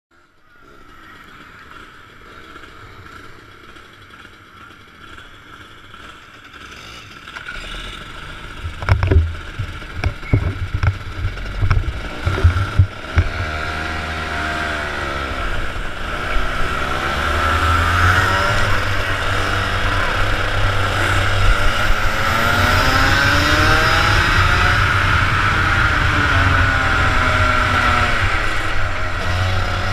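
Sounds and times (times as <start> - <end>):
kart engines running: 0.2 - 29.9
sharp thumps: 8.5 - 14.0.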